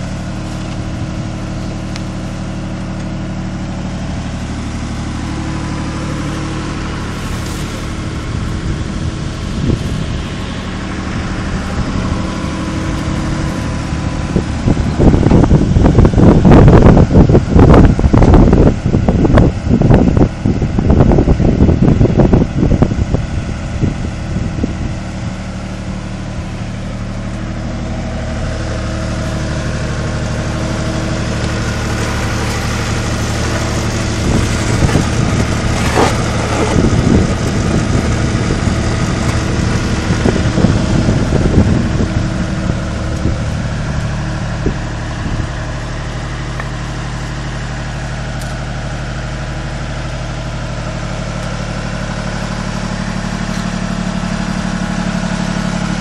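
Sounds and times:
diesel engine running: 0.0 - 56.0
wind buffeting microphone: 7.8 - 25.4, 30.7 - 46.1.

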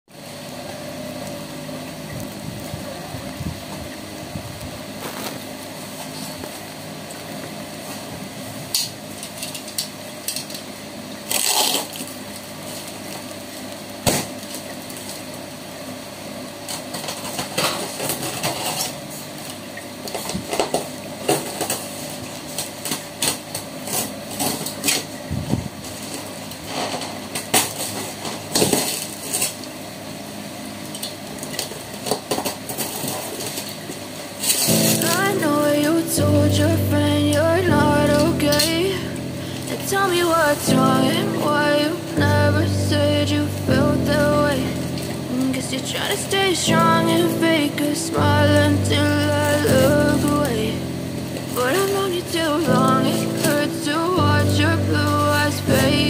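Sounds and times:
steady low hum: 0.1 - 56.0
knife cutting packing tape: 11.2 - 12.2.

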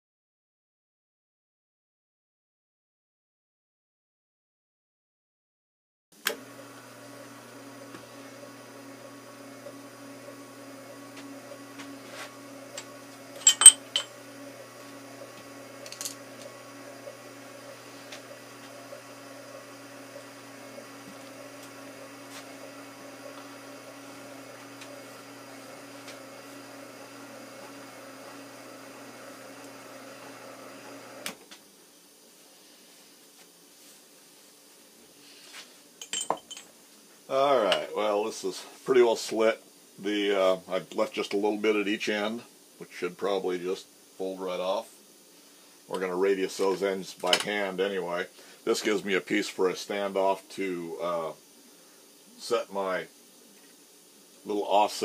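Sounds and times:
drill press motor hum: 6.2 - 31.4
metallic clinks: 13.4 - 14.1.

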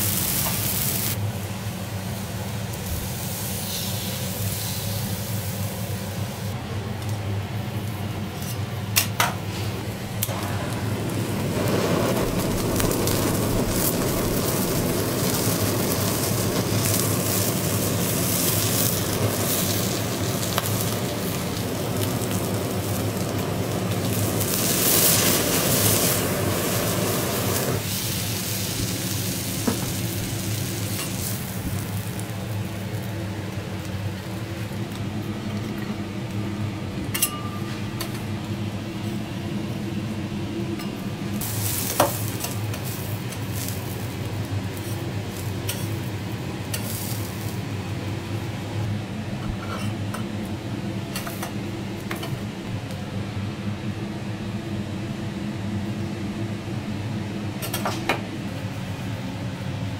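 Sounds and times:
lobster sizzling on griddle: 0.0 - 6.5, 9.8 - 36.9, 41.4 - 48.5
kitchen blowtorch roaring: 0.0 - 37.2, 38.0 - 59.9
low hum: 9.8 - 27.8.

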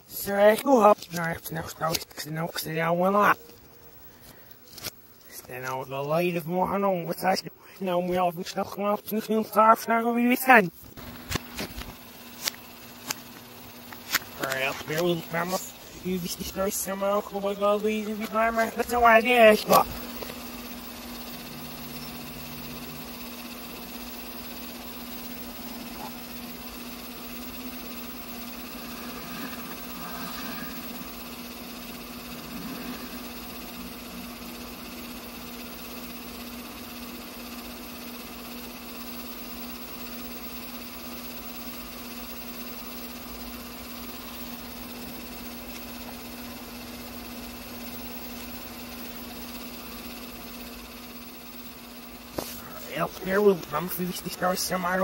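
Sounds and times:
low electrical hum: 0.0 - 55.0
constant hiss: 49.4 - 55.0.

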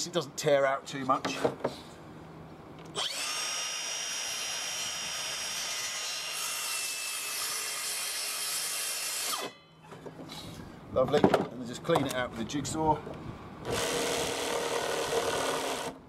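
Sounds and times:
circular saw cutting wood: 3.0 - 9.6, 13.7 - 16.0.

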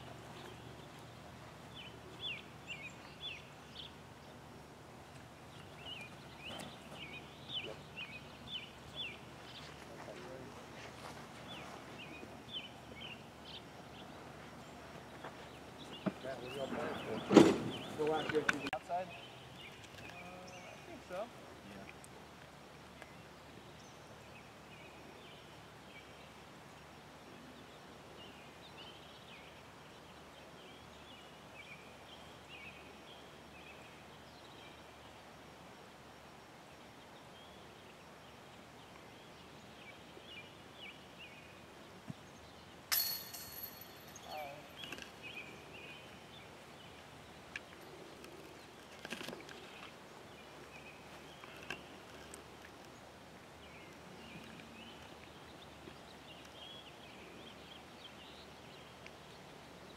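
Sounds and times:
small birds chirping: 0.0 - 59.9
metallic clank: 42.9 - 44.2.

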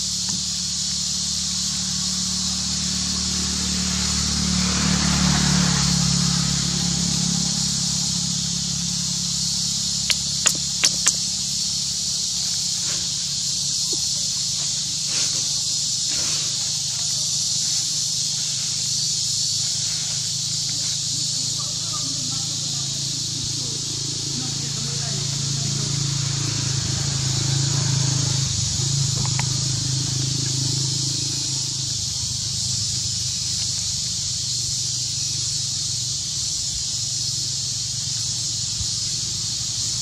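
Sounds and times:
high-pitched insect drone: 0.0 - 40.0
sharp clicks: 10.1 - 11.4, 29.2 - 29.7.

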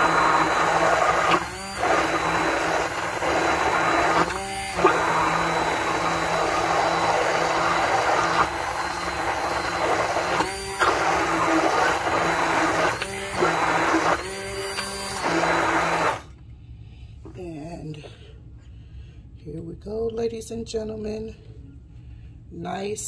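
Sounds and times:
immersion blender motor whirring: 0.0 - 16.3.

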